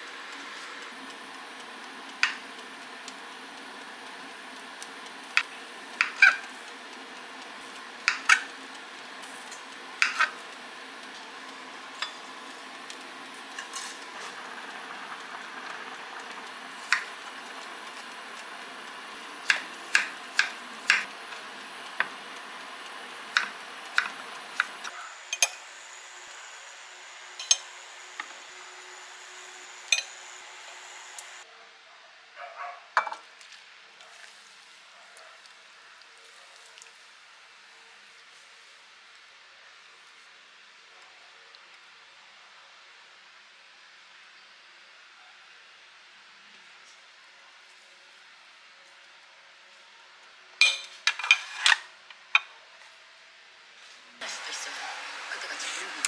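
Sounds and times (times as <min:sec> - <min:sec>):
plate clinking on stone: 0:50.6 - 0:51.7.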